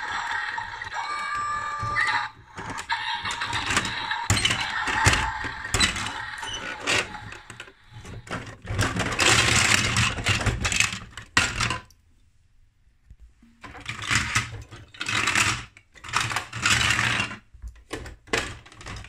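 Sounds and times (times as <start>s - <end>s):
toy truck mechanical whirr: 0.0s - 10.4s.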